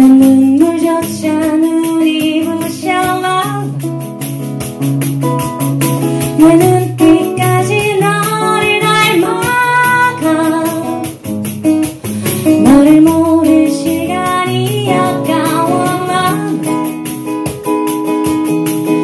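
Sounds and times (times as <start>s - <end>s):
woman singing into microphone: 0.0s - 3.9s, 6.2s - 11.3s, 12.0s - 17.0s
guitar accompaniment: 0.0s - 19.0s.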